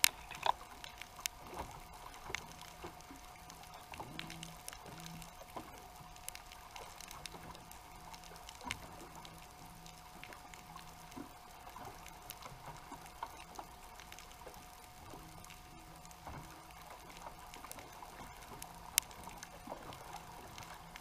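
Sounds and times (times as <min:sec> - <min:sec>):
faint hum: 0:00.0 - 0:21.0
underwater clicks and crackles: 0:00.0 - 0:21.0.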